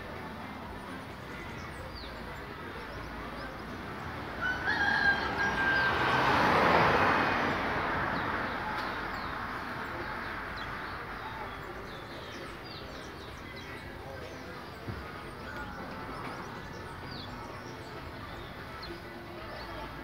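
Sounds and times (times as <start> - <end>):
rooster crowing: 4.4 - 6.2.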